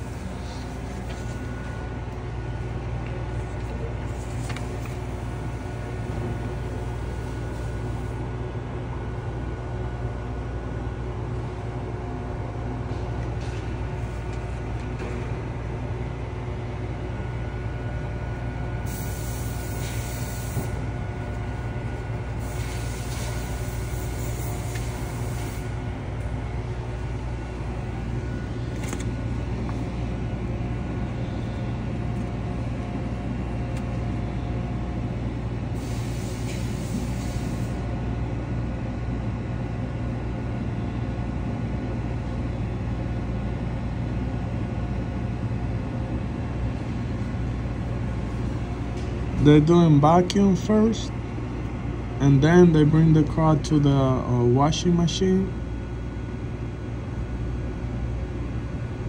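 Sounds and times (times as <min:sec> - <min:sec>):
car wash machinery hum: 0:00.0 - 0:59.0
faint steady whine: 0:00.0 - 0:59.0
hissing bursts: 0:18.9 - 0:20.8, 0:22.4 - 0:25.7.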